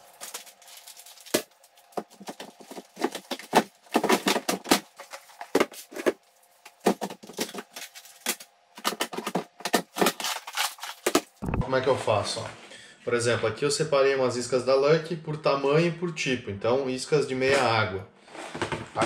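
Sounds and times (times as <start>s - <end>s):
plastic boxes clattering and knocking: 1.2s - 10.3s, 18.4s - 19.0s.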